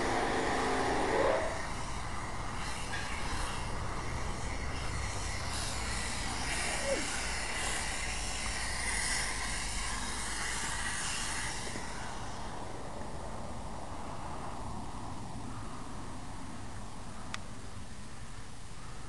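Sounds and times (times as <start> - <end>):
steam cleaner hissing: 0.0 - 12.7.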